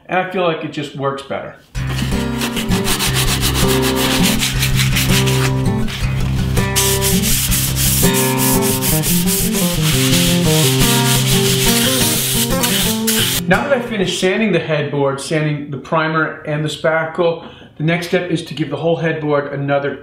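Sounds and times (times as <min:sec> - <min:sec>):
sandpaper rubbing on wood: 0:01.8 - 0:13.4.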